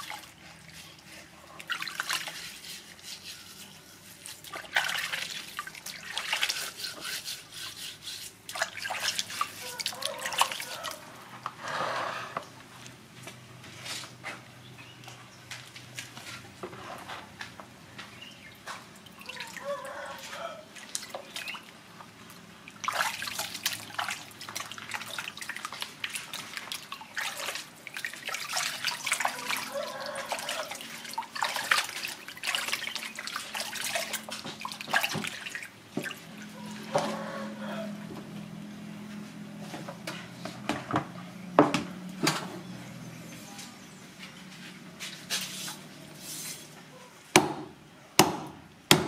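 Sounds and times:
water splashing in plastic basin: 0.0 - 2.6, 4.2 - 7.0, 8.4 - 11.1, 18.5 - 37.6
hands scrubbing meat: 0.0 - 11.2, 18.8 - 37.6.

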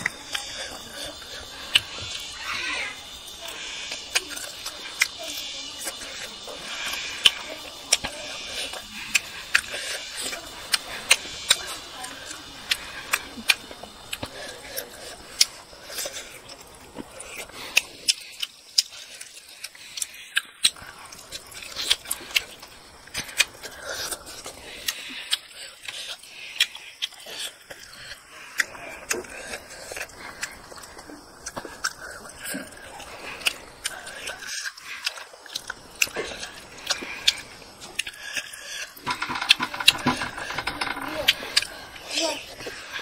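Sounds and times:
wet chewing and smacking: 0.0 - 43.0.

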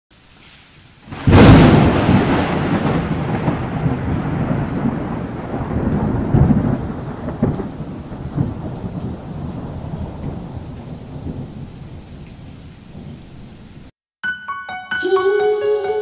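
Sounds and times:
rain hiss: 0.1 - 13.9
thunderclap and rolling rumble: 1.1 - 13.4.

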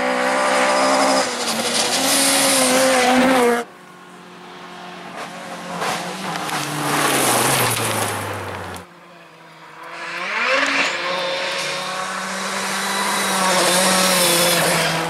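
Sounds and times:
rally car engine revving: 0.0 - 3.7, 4.8 - 15.0.

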